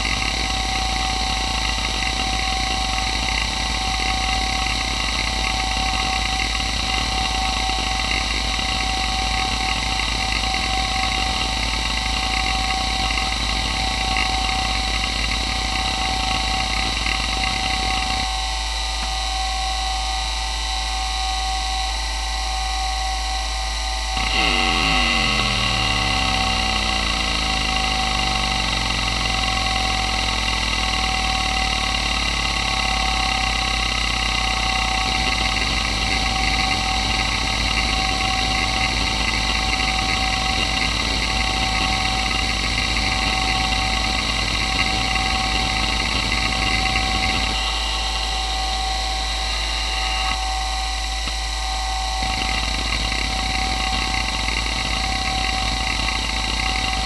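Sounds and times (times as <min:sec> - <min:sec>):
hard drive spindle whine: 0:00.0 - 0:57.0
hard drive heads chattering: 0:24.2 - 0:48.2.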